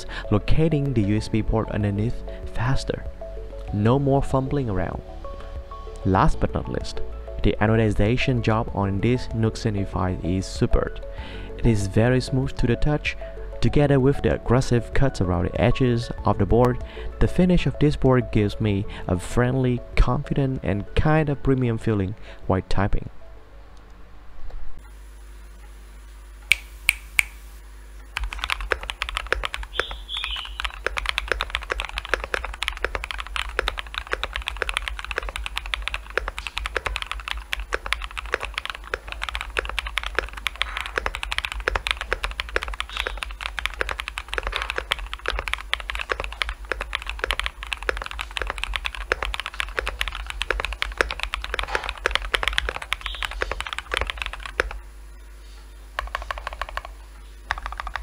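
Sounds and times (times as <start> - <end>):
mechanical keyboard typing: 28.2 - 54.8, 56.0 - 58.0.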